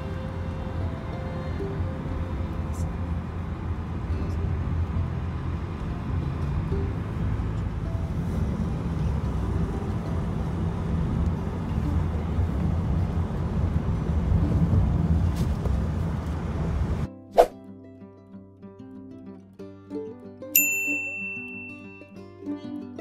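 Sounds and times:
vehicle road and engine rumble: 0:00.0 - 0:17.5.

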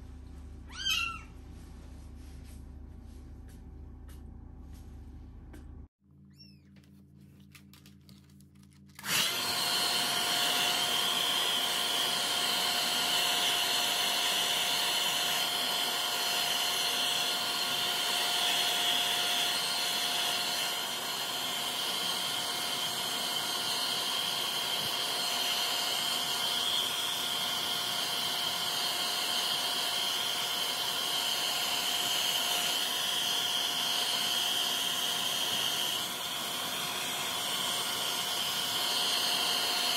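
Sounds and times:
hair dryer blowing: 0:09.0 - 0:39.9
hair dryer whine: 0:09.0 - 0:39.9.

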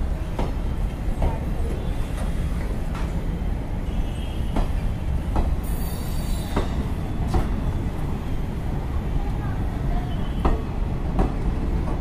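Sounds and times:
train rumbling past: 0:04.4 - 0:12.0.

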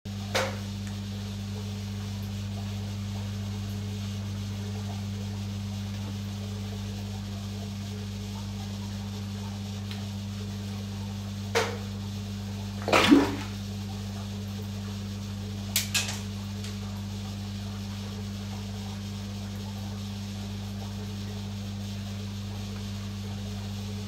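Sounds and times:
low electrical hum: 0:00.1 - 0:24.0
water splashes in fish tank: 0:12.7 - 0:14.2.

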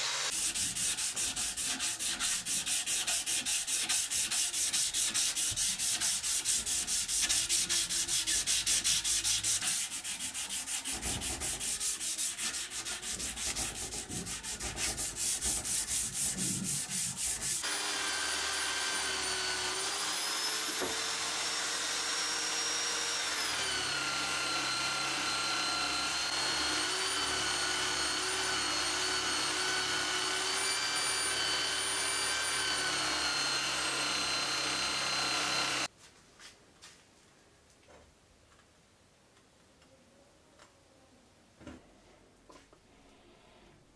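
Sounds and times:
angle grinder buffing wheel whine: 0:00.0 - 0:00.3, 0:17.6 - 0:35.9
sandpaper rubbing on steel blade: 0:00.0 - 0:17.6.

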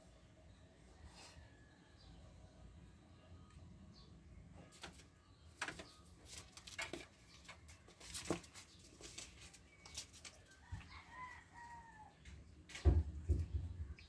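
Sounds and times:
faint scuffling: 0:05.7 - 0:11.0.

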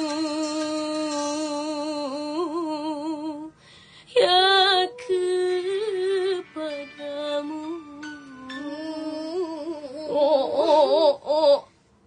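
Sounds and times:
woman singing with vibrato: 0:00.0 - 0:11.7.

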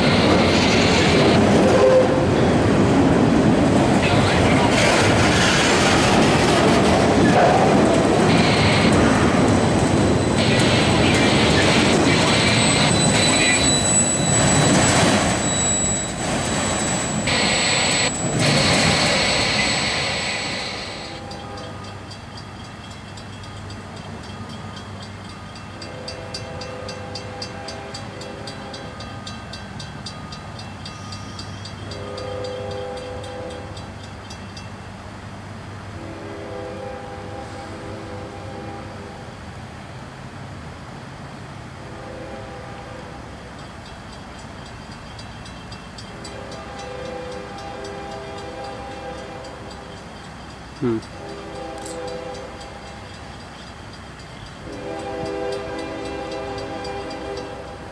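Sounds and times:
train wheels rolling on rails: 0:00.0 - 0:57.9
high wheel squeal: 0:09.6 - 0:21.4.

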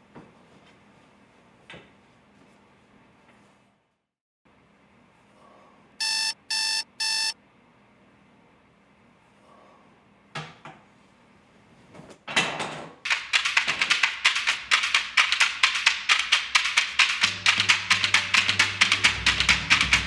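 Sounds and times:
alarm clock beeping: 0:06.0 - 0:07.4
quick percussive taps: 0:13.0 - 0:20.0.

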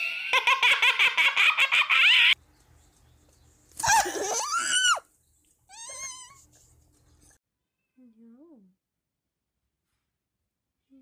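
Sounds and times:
high-pitched squealing laughter: 0:00.0 - 0:02.4, 0:03.8 - 0:05.0.

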